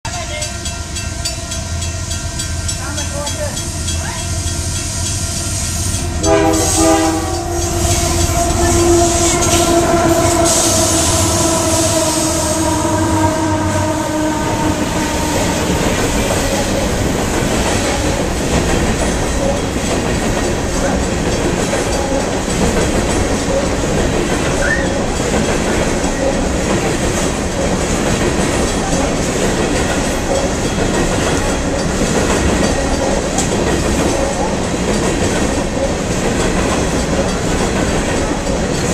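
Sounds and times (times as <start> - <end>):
train cars rolling on rails: 0.1 - 38.9
locomotive air horn: 5.7 - 16.2.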